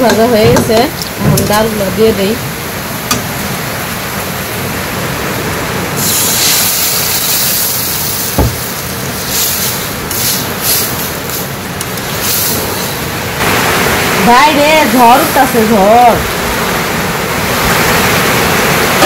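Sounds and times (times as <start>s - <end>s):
lentils sizzling in hot oil: 6.0s - 13.0s
short knock: 8.4s - 8.6s.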